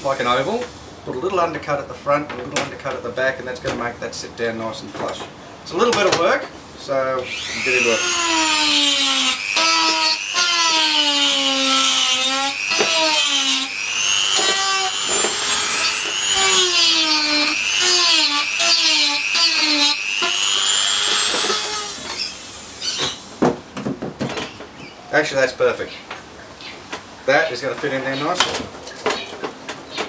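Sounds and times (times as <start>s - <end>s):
rotary tool grinding plastic: 7.3s - 23.1s.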